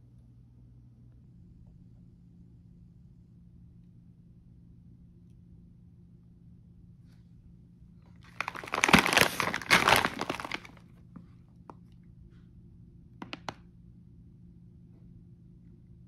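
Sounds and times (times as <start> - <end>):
plastic pouch crinkling: 8.2 - 10.8.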